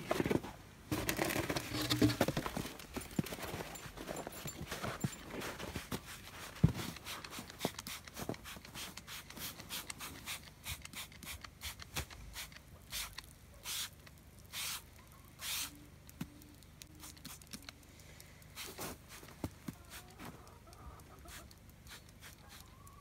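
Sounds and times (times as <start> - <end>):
spray bottle squirting: 7.0 - 15.8, 16.9 - 17.6, 18.6 - 19.3, 21.3 - 22.6.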